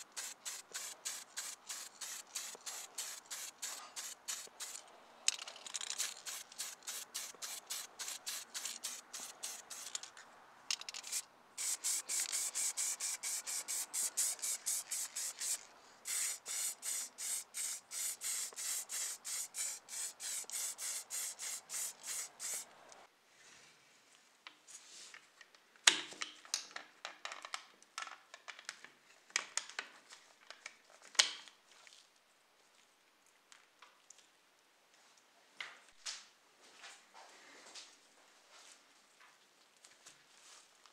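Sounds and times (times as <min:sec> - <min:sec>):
spray paint can bursts: 0:00.0 - 0:04.9, 0:05.6 - 0:10.0, 0:10.8 - 0:22.7
clicks of small parts handled: 0:05.2 - 0:06.3, 0:09.8 - 0:11.2.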